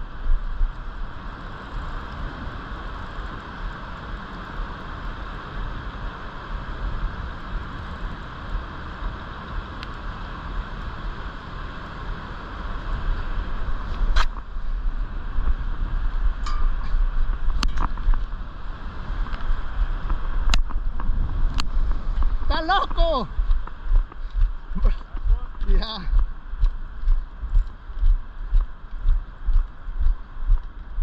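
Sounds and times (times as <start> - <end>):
wind rumbling on microphone: 0.0 - 31.0.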